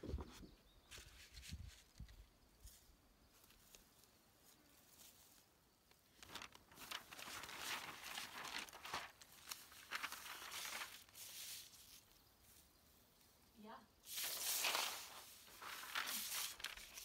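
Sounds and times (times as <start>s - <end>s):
paper rustling: 6.1s - 12.2s, 14.1s - 17.0s.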